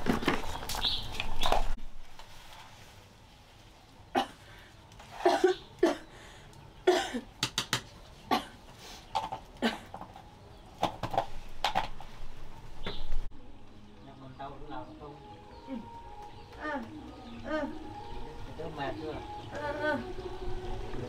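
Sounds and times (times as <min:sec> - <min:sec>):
person coughing: 0:04.2 - 0:04.5, 0:06.9 - 0:07.3, 0:08.3 - 0:08.6.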